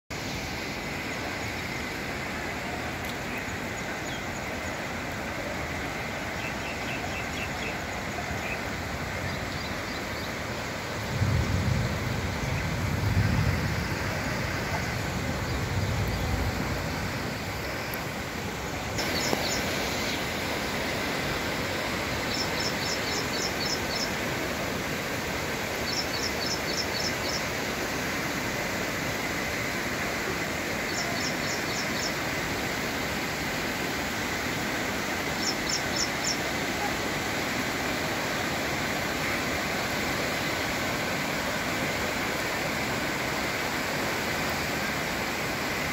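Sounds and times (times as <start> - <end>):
heavy rain: 0.1 - 45.9
rushing floodwater: 0.1 - 45.9
low rumble of thunder: 11.0 - 17.3.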